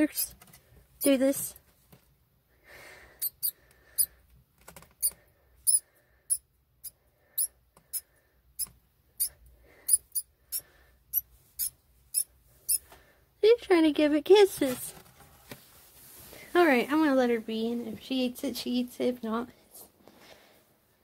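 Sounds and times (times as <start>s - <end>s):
mouse squeaking: 3.2s - 4.1s, 5.0s - 8.0s, 8.6s - 12.8s.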